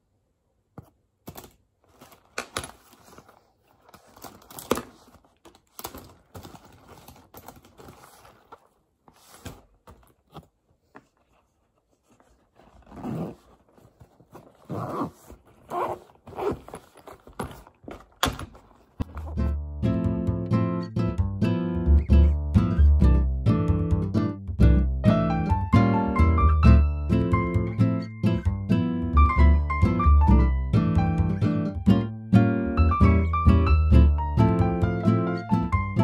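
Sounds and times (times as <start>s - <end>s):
fabric rustling: 1.8s - 19.5s.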